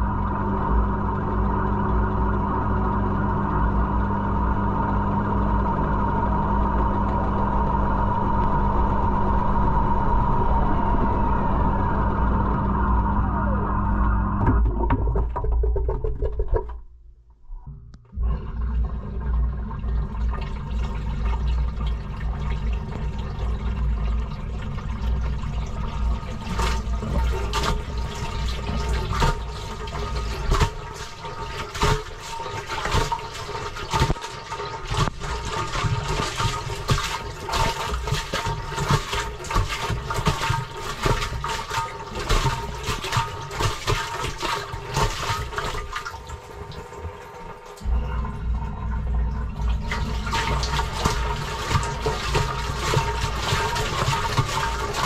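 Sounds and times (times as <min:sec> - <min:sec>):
water sloshing in washing machine: 0:00.0 - 0:13.0, 0:18.1 - 0:55.0
heavy low rumble: 0:00.0 - 0:15.4, 0:47.8 - 0:51.5.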